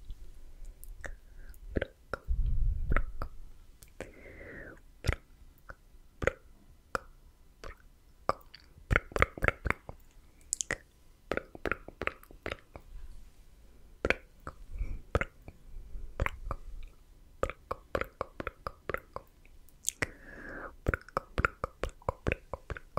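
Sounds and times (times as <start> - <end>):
tongue clicks: 0.6 - 2.3, 2.9 - 4.1, 5.0 - 12.9, 14.0 - 15.6, 16.2 - 20.2, 20.8 - 22.9
lip pops: 16.2 - 16.7.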